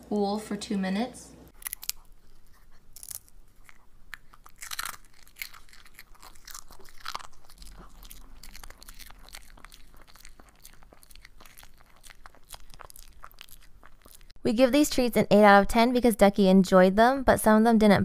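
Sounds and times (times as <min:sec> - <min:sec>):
dog crunching treats: 0:01.6 - 0:14.3.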